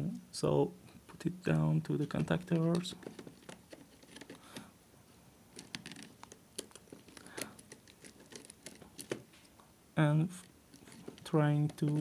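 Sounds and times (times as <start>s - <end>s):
wire clicks and scrapes: 2.0s - 4.7s, 5.5s - 9.6s, 10.3s - 12.0s
screwdriver turning terminal screw: 5.6s - 9.2s.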